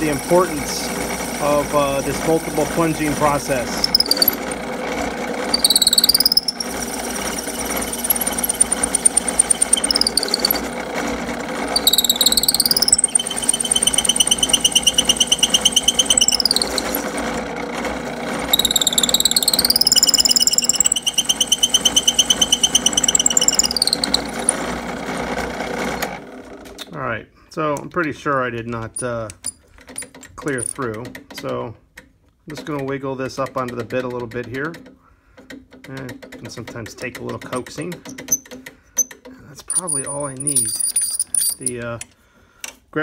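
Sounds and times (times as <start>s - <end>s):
drill press motor hum: 0.0s - 26.8s
drill bit squealing: 1.3s - 4.6s, 5.4s - 10.9s, 11.5s - 17.2s, 18.4s - 24.7s, 39.7s - 41.8s.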